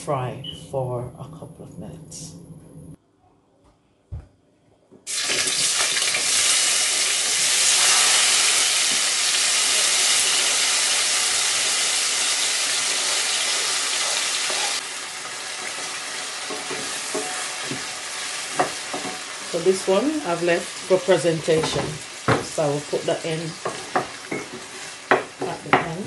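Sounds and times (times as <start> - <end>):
vegetables sizzling in hot oil: 5.1 - 25.8.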